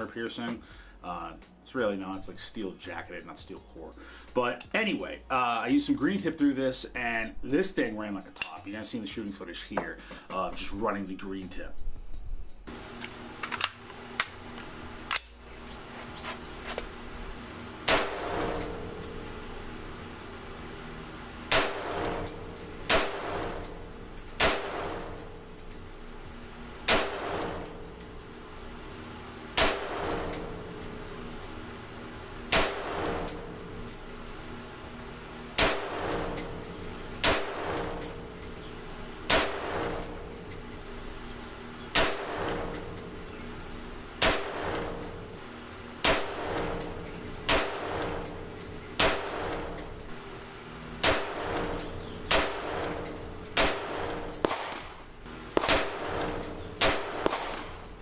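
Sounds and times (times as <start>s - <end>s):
rifle single shots ringing: 53.6s - 54.9s, 55.6s - 57.8s.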